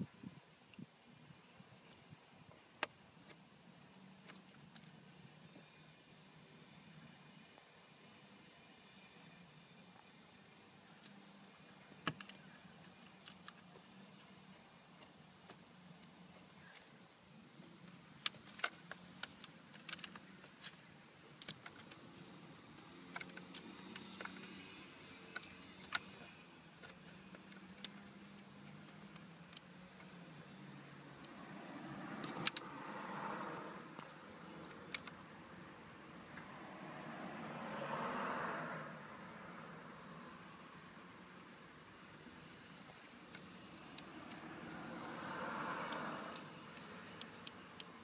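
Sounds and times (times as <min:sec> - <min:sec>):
faint steady hum: 0:00.0 - 0:37.5.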